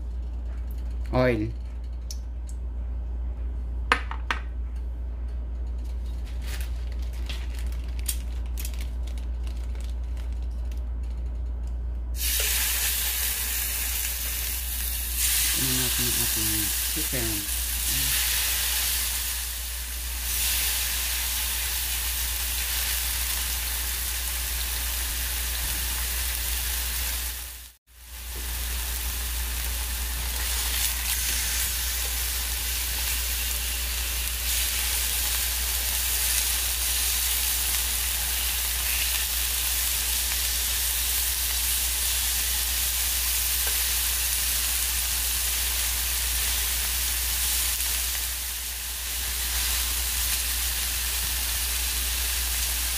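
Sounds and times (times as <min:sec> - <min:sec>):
chicken sizzling in hot oil: 0:12.2 - 0:52.9.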